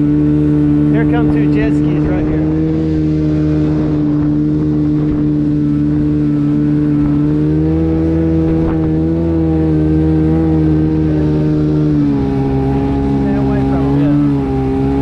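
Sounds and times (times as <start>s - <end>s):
jet-ski engine running: 0.0s - 15.0s.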